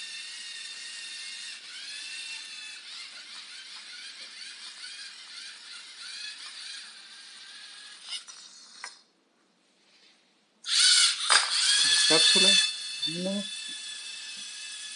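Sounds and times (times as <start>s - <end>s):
electric motors whirring: 0.0s - 9.0s, 10.6s - 14.9s.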